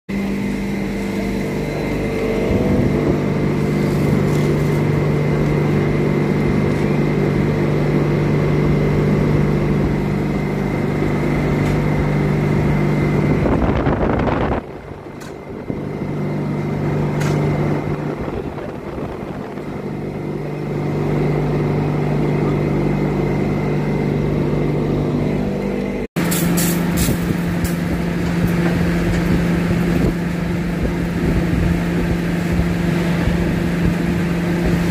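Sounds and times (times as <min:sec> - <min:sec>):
fire engine pump engine drone: 0:00.1 - 0:34.9.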